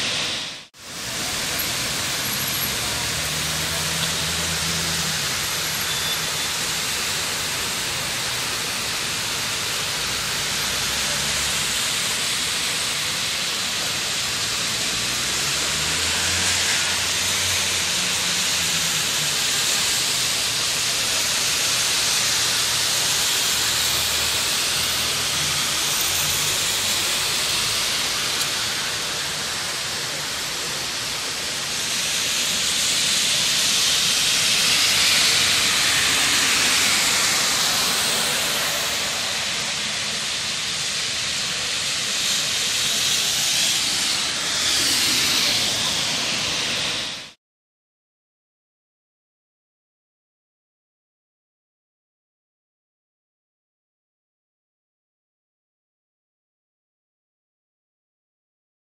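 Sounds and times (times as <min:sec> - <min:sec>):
cars driving on wet road: 0:00.0 - 0:47.4
rain falling on a street: 0:00.0 - 0:47.4.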